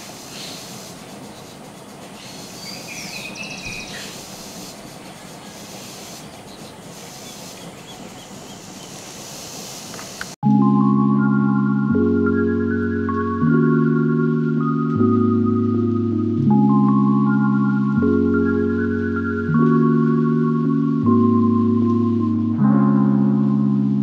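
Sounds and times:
wind hiss: 0.0 - 10.4.

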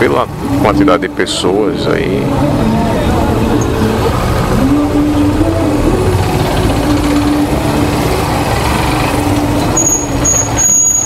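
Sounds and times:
surrounding traffic noise: 0.0 - 11.0
motorcycle engine running: 2.2 - 10.2.

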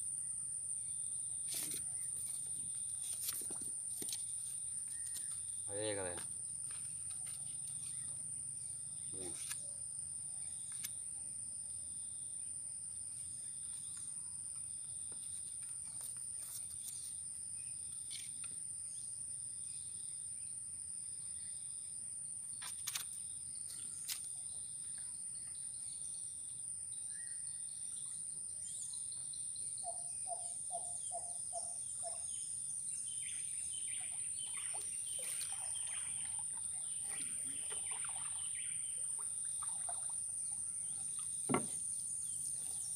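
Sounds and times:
bird calls: 29.8 - 42.9.

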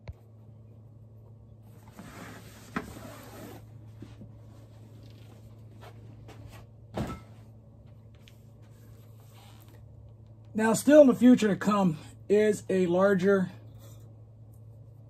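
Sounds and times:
steady low hum: 0.0 - 15.0
vinyl cover rustling and sliding: 1.7 - 6.7.

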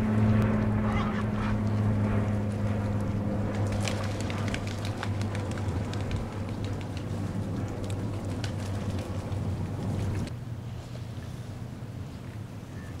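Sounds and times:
steady low hum: 0.0 - 13.0
water lapping and dripping: 0.2 - 12.6
small sharp splashes: 3.5 - 7.1.

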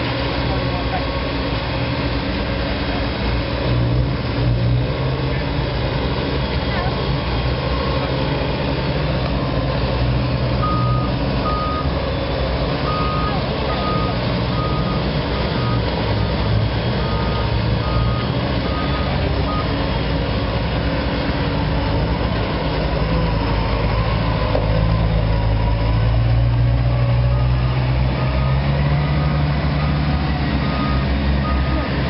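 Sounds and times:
diesel engines working: 0.0 - 32.0
reversing alarm beeping: 10.5 - 12.0, 12.7 - 19.9, 27.3 - 32.0.

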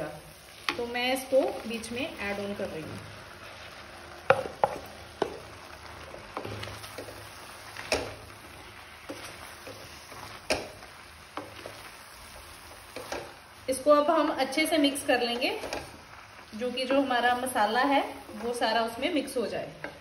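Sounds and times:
low sizzle: 0.0 - 20.0
spatula scraping a pan: 3.3 - 13.4, 15.2 - 16.1.

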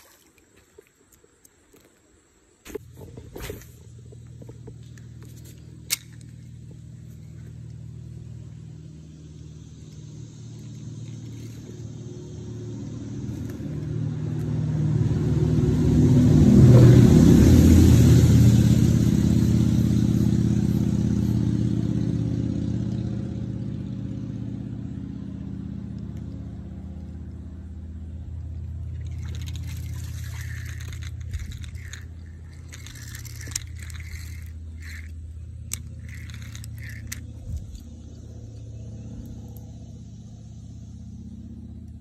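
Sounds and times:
vehicle passing overhead: 5.1 - 42.0.

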